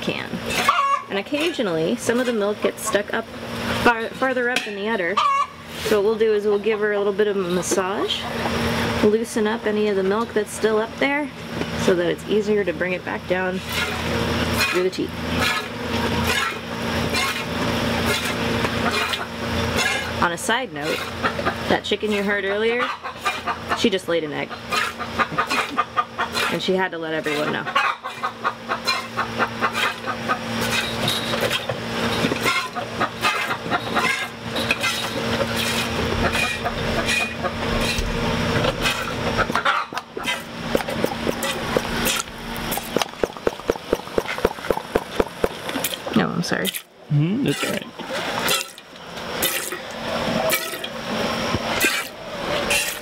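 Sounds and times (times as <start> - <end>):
steady low hum: 0.0 - 53.0
hen cackling: 0.6 - 1.1, 5.1 - 5.6, 22.8 - 23.9, 24.5 - 26.4, 27.6 - 30.5, 39.3 - 40.6.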